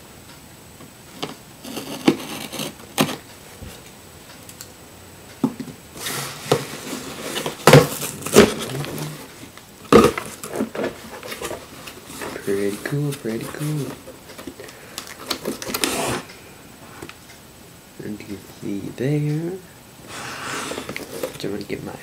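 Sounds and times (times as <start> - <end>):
packaging rustling and crinkling: 6.0 - 16.3, 20.1 - 21.7.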